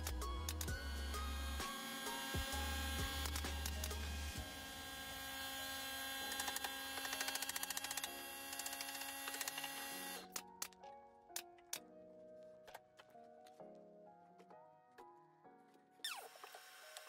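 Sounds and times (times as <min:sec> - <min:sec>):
sustained music tones: 0:00.0 - 0:11.8.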